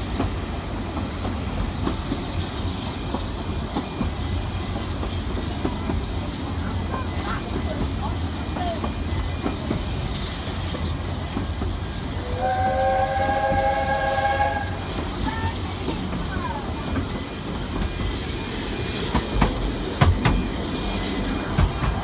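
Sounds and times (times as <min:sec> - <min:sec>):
train carriage rumble: 0:00.0 - 0:22.0
train wheels knocking: 0:00.0 - 0:22.0
train chord whistle blast: 0:12.2 - 0:14.8.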